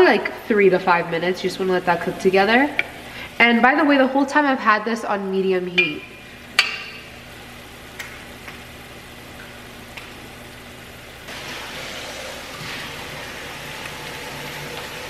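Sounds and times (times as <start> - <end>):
vegetables sizzling in a pot: 6.2 - 15.0.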